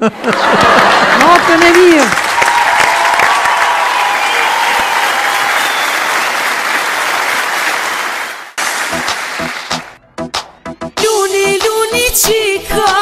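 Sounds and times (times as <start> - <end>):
audience applauding: 0.2 - 10.0.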